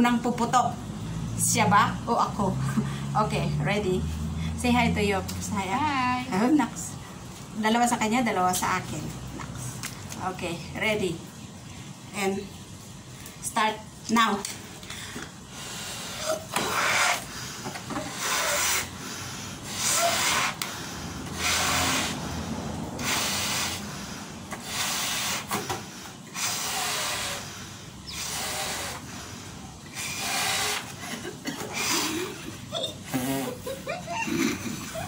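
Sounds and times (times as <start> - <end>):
breathy puffs into balloons: 14.8 - 33.7.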